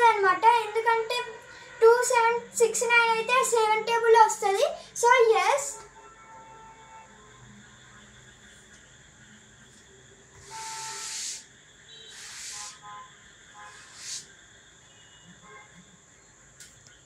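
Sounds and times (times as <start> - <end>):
duster rubbing across chalkboard: 10.4 - 11.4, 12.1 - 12.8, 13.7 - 14.3.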